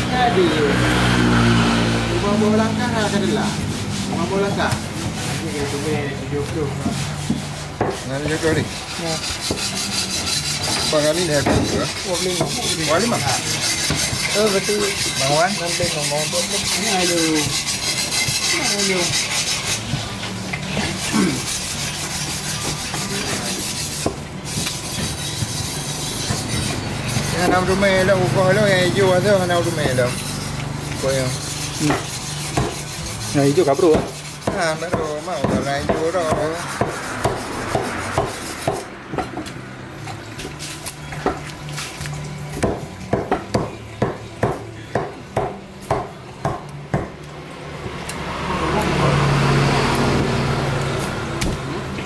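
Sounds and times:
knife sawing through fish: 0.0s - 39.0s
blade knocking on wood: 6.8s - 8.0s, 10.7s - 12.6s, 31.8s - 32.8s, 33.8s - 39.5s, 42.6s - 47.2s
knife chopping on wooden block: 6.8s - 8.5s, 9.3s - 12.8s, 22.3s - 27.7s, 31.8s - 32.9s, 33.8s - 39.5s, 42.6s - 47.2s.

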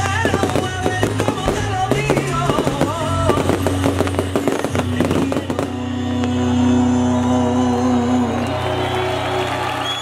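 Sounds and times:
fireworks shells bursting: 0.0s - 5.9s
music: 0.0s - 10.0s.

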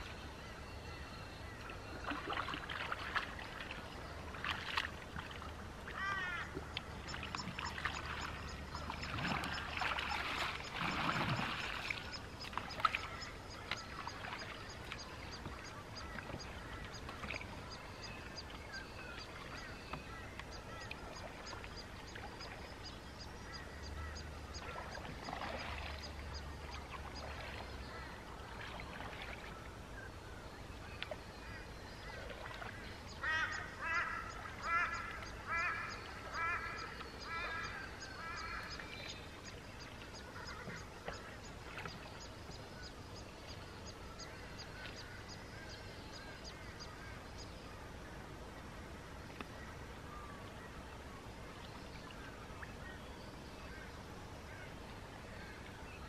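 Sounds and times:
bird calling: 5.9s - 17.8s, 31.5s - 39.2s.

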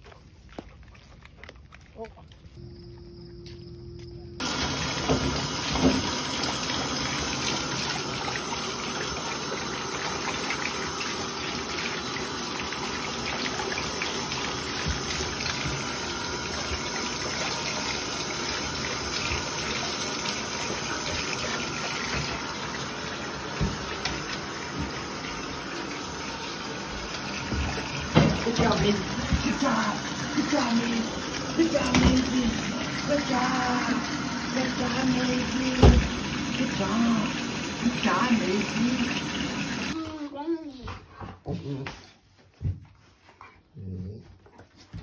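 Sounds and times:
faucet water pouring into tub: 4.4s - 40.0s.

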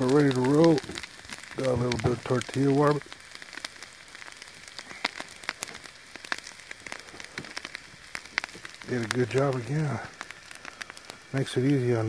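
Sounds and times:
food sizzling with popping: 0.0s - 12.0s.

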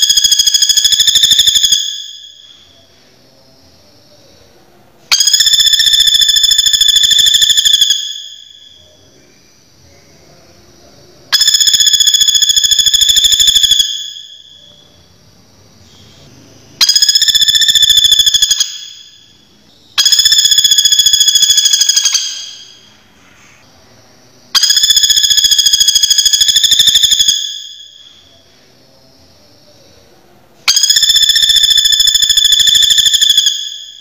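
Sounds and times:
woodpecker rattling trill: 0.0s - 2.4s, 5.1s - 8.8s, 11.4s - 14.5s, 16.8s - 19.2s, 20.0s - 22.8s, 24.6s - 28.0s, 30.7s - 34.0s.

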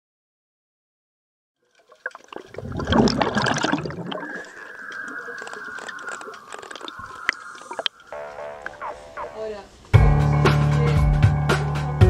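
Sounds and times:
rushing water hiss: 2.4s - 10.0s.

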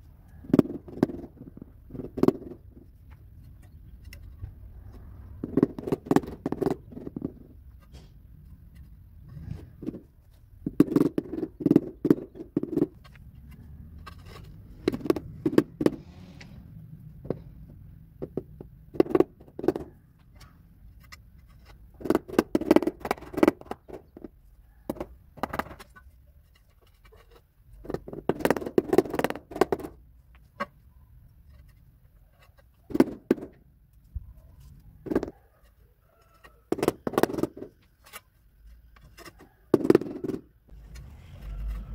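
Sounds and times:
rubber mallet tapping tiles: 5.4s - 7.5s, 10.6s - 13.5s, 14.8s - 16.0s, 18.2s - 19.9s.

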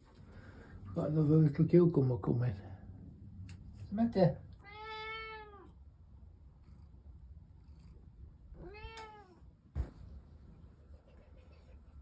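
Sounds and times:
cat meowing: 4.5s - 5.8s, 8.6s - 9.4s
short thump: 9.7s - 10.2s.

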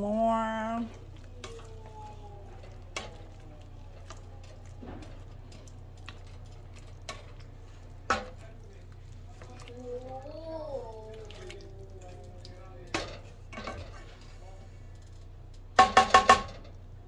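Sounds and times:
steady low hum: 0.0s - 17.0s
spatula scraping skillet: 0.7s - 9.8s, 10.8s - 14.9s.

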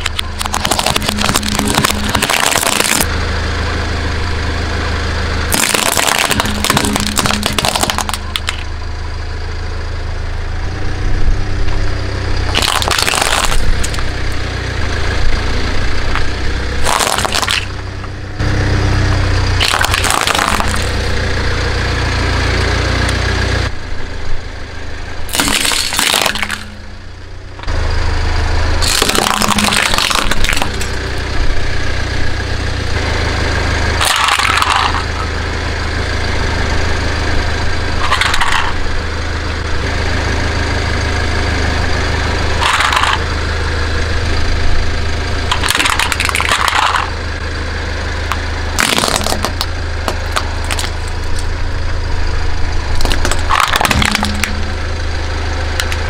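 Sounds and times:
tyre crushing crunchy objects: 0.0s - 3.1s, 5.5s - 8.7s, 12.4s - 14.3s, 16.2s - 17.9s, 19.1s - 21.1s, 25.3s - 26.8s, 28.8s - 31.0s, 34.0s - 35.4s, 38.0s - 38.8s, 42.6s - 43.2s, 45.5s - 47.1s, 48.3s - 51.5s, 52.9s - 54.8s
car engine hum: 0.0s - 56.0s.

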